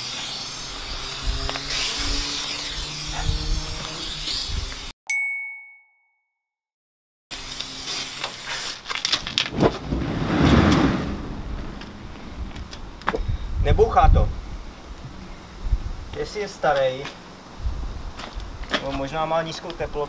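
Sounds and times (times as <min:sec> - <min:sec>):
spray can hissing: 0:00.0 - 0:04.9, 0:07.4 - 0:09.4
sharp ringing ding: 0:05.1 - 0:06.3
whoosh of fluid igniting: 0:08.7 - 0:15.0.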